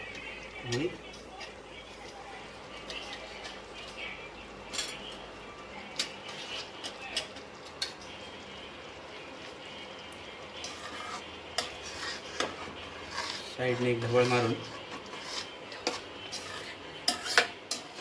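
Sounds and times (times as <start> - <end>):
thick sauce simmering with pops: 5.8 - 13.6, 14.4 - 18.0.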